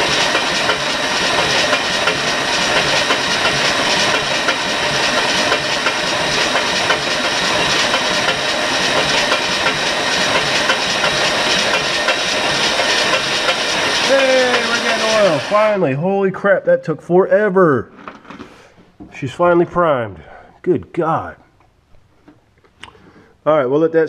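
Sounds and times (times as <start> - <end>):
machine clattering and hissing: 0.0 - 15.8.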